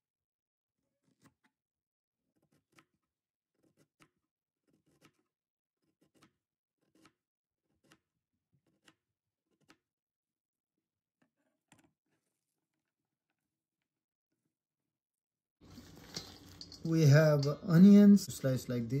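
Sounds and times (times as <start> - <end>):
knife slicing cabbage: 0.8 - 1.6, 2.3 - 9.9.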